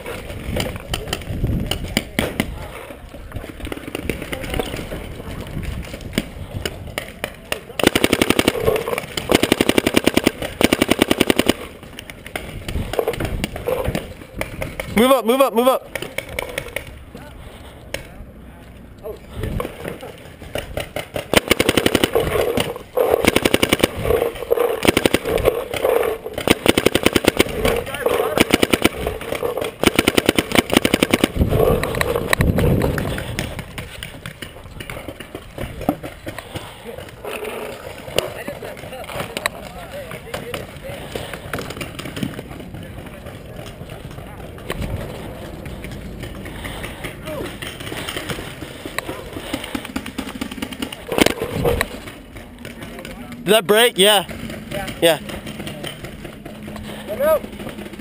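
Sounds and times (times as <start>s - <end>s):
paintball marker rapid firing: 5.7s - 15.1s, 20.4s - 37.1s, 45.6s - 53.4s
low rumbling movement noise: 31.1s - 36.3s.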